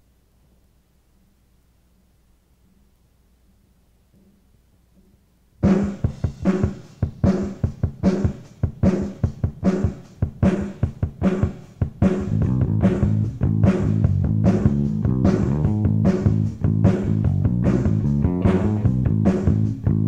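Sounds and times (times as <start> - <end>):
drum kit beat: 5.6 - 20.0
bass guitar: 12.0 - 20.0.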